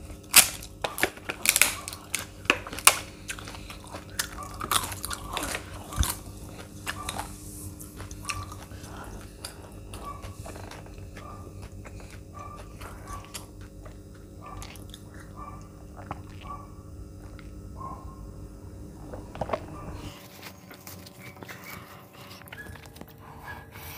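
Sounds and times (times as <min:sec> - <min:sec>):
crunching bite: 0:00.0 - 0:17.6
chewing and mouth sounds: 0:00.0 - 0:23.9.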